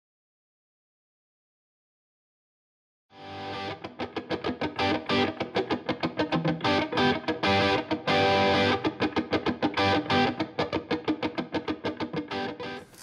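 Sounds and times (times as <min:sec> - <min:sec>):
guitar picking intro music: 0:03.2 - 0:13.0.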